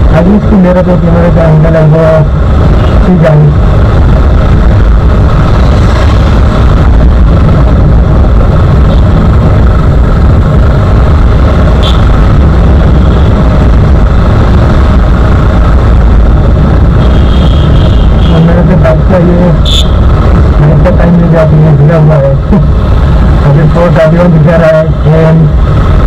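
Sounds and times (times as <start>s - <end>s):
wind on microphone: 2.3s - 18.3s.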